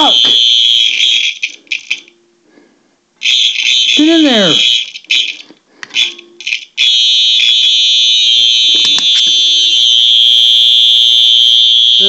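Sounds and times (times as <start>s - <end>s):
fire alarm chirps: 0.0s - 1.4s, 3.2s - 5.3s, 6.0s - 12.0s
piercing high-pitched alarm tone: 0.0s - 1.5s, 3.2s - 5.4s, 6.0s - 12.0s.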